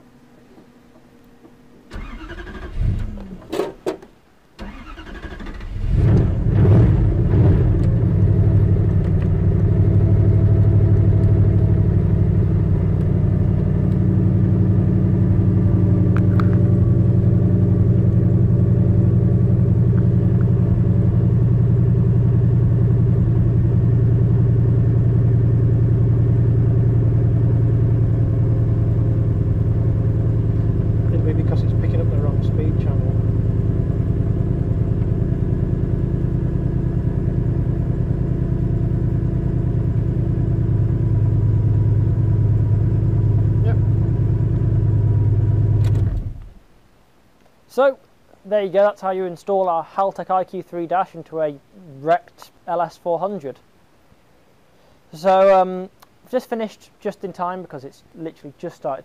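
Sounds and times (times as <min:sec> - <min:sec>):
car engine starting and idling: 0:00.0 - 0:46.7.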